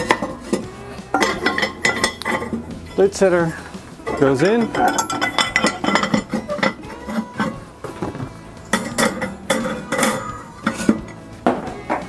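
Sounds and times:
background music: 0.0s - 12.0s
metal and ceramic clinks: 1.1s - 3.0s, 4.0s - 7.6s, 8.6s - 11.2s.

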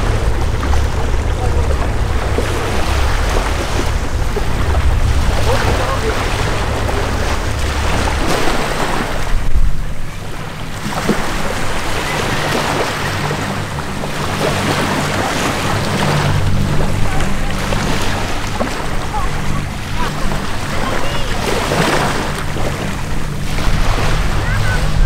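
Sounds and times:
low engine drone: 0.0s - 25.0s
surf: 0.0s - 25.0s
wind buffeting microphone: 0.0s - 25.0s.

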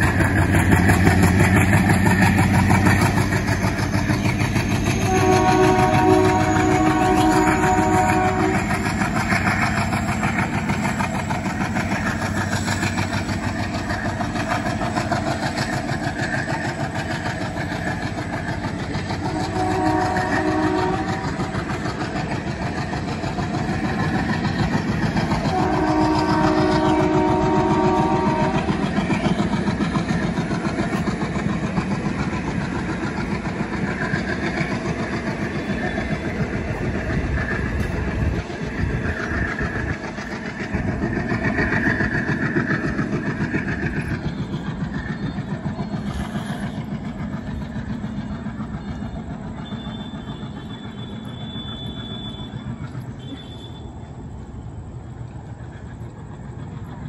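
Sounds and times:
diesel locomotive engine chugging: 0.0s - 57.0s
train coaches clattering on rails: 0.0s - 57.0s
train horn: 4.9s - 8.9s, 19.2s - 21.7s, 25.4s - 29.1s, 48.8s - 54.1s.

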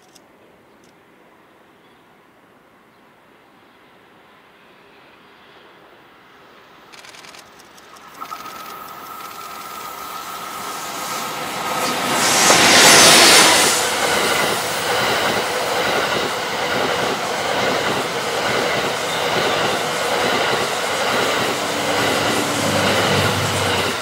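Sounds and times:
train coaches rolling on rails: 7.4s - 24.0s
electric locomotive passing: 7.6s - 24.0s.

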